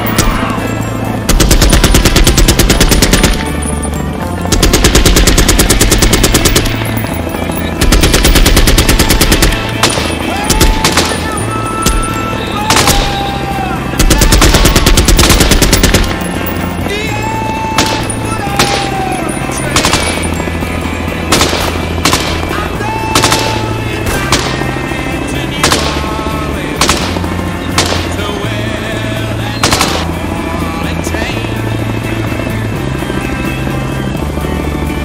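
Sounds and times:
automatic gunfire: 0:01.3 - 0:03.7, 0:04.4 - 0:13.4, 0:14.0 - 0:16.6, 0:17.6 - 0:20.4, 0:21.2 - 0:24.9, 0:25.6 - 0:28.4, 0:29.5 - 0:30.2.

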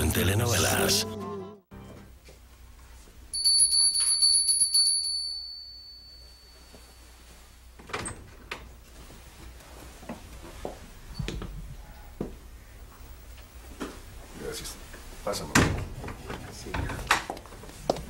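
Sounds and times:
bell ringing rapidly: 0:03.3 - 0:06.7.

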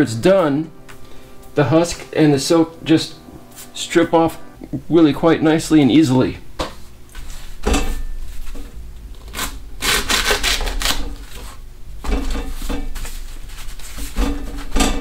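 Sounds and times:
knife sawing through corn: 0:09.4 - 0:11.6.

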